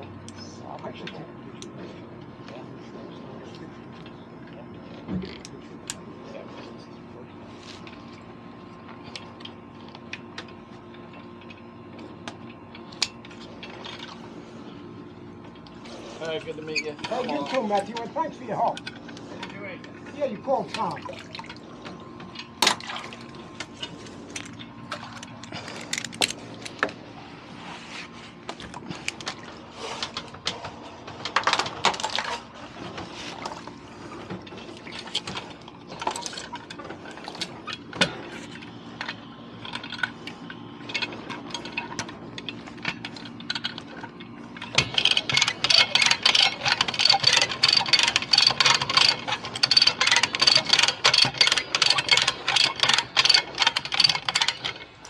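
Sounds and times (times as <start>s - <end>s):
low steady hum: 0.0s - 55.0s
scattered clicks and knocks: 30.0s - 33.6s, 34.2s - 55.0s
fast mechanical clicks: 39.0s - 55.0s.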